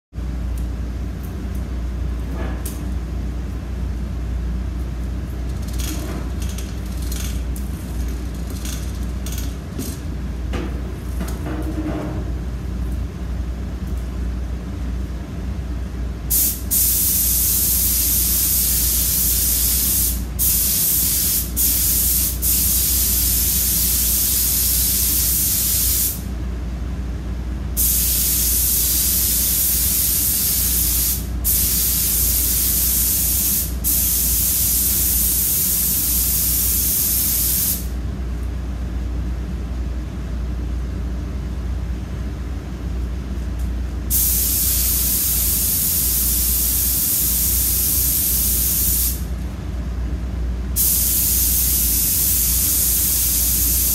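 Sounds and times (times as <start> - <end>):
paint spray gun hissing: 16.3 - 26.2, 27.8 - 37.9, 44.1 - 49.2, 50.8 - 53.9.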